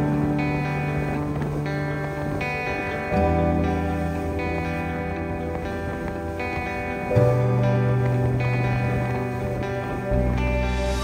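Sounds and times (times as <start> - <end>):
calm instrumental music: 0.0 - 11.0
deep bass note: 10.0 - 11.0.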